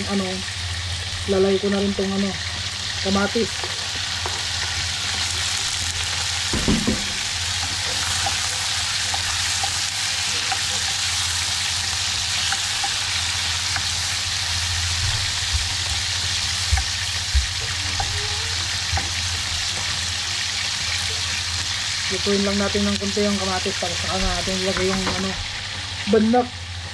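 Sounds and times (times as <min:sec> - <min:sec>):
fish sizzling in oil: 0:00.0 - 0:26.9
ladle stirring in pan: 0:03.6 - 0:14.3.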